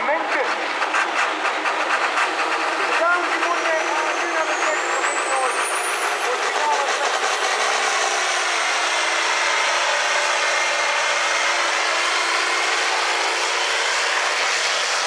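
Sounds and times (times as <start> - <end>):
diesel tractor engine under load: 0.0 - 15.0.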